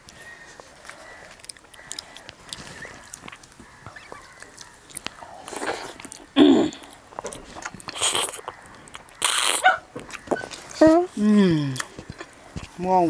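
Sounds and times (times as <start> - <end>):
chewing: 0.0 - 11.0, 11.7 - 12.8
wet mouth clicks: 0.8 - 10.4
wet slurping mouth noises: 1.6 - 10.6.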